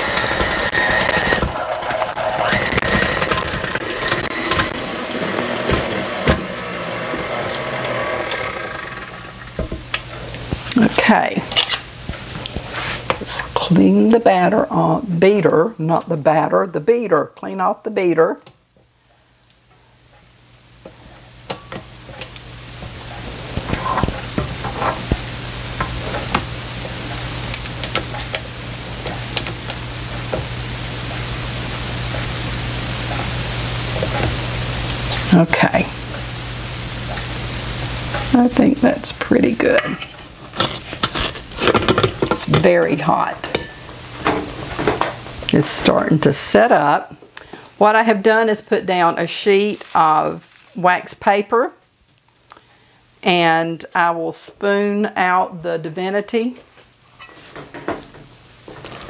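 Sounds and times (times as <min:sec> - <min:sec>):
stand mixer motor running: 0:00.0 - 0:09.6
steady hiss and low hum: 0:00.0 - 0:59.0.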